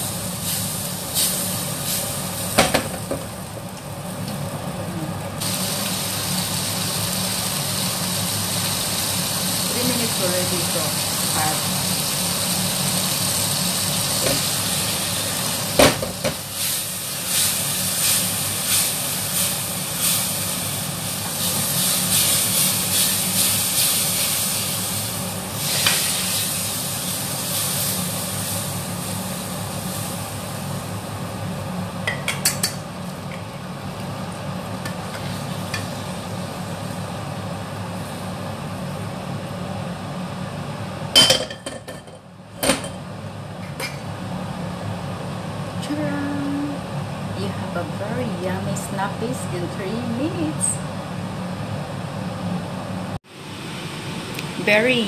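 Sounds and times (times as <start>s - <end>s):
food sizzling in a wok: 0.0s - 4.6s, 5.4s - 39.4s
range hood fan hum: 0.0s - 55.0s.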